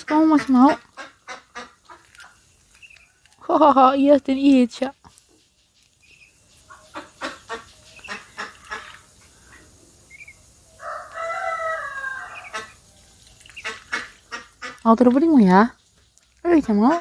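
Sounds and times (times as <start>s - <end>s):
ducks clucking calls: 0.0s - 3.2s, 6.0s - 10.4s, 12.1s - 15.7s, 16.4s - 17.0s
duck chirp: 6.0s - 10.4s, 12.3s - 12.8s, 13.4s - 14.8s.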